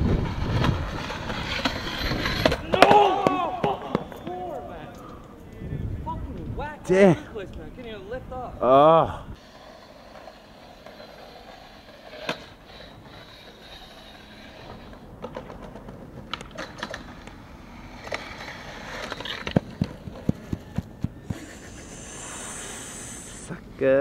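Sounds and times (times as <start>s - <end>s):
skateboard rolling on rough pavement: 0.0s - 4.0s, 9.4s - 21.3s
skateboard wheels clicking over joints: 9.4s - 21.5s.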